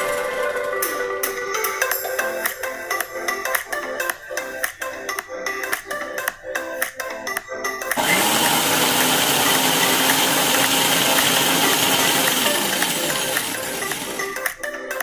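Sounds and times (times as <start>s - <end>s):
background music: 0.0s - 15.0s
mixer grinder whirring: 7.9s - 14.6s.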